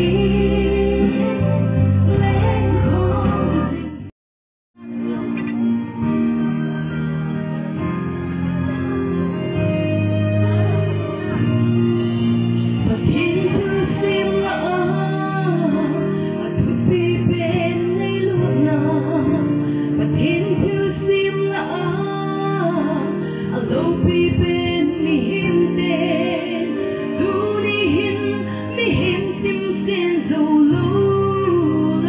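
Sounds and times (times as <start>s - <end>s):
held backing chords: 0.0s - 4.1s, 4.8s - 32.0s
woman singing into microphone: 0.0s - 4.1s, 12.6s - 32.0s.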